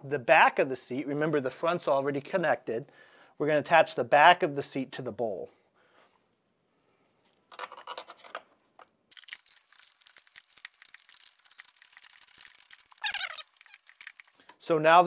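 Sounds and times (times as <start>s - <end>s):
plastic parts rustling and scraping: 7.1s - 14.6s.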